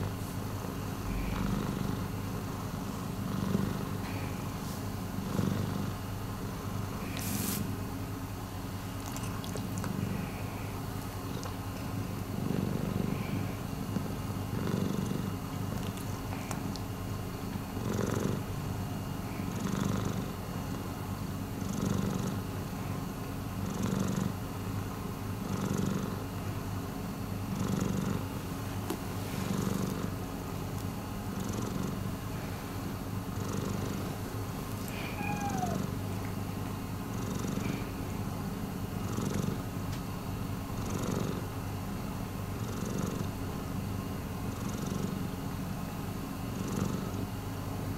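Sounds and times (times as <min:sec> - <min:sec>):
cat purring: 0:01.1 - 0:07.6, 0:09.0 - 0:16.8, 0:17.7 - 0:18.6, 0:19.3 - 0:22.5, 0:23.5 - 0:24.4, 0:25.4 - 0:26.3, 0:27.4 - 0:28.4, 0:29.3 - 0:30.2, 0:31.3 - 0:32.4, 0:33.3 - 0:36.0, 0:37.1 - 0:39.7, 0:40.7 - 0:41.5, 0:42.6 - 0:43.5, 0:44.5 - 0:45.3, 0:46.5 - 0:47.3.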